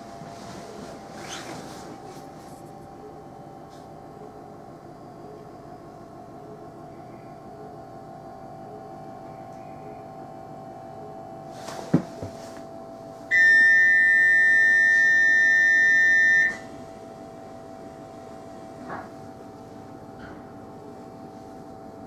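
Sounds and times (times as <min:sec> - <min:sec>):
electric train hum: 0:00.0 - 0:22.0
train door warning beep: 0:13.3 - 0:16.8.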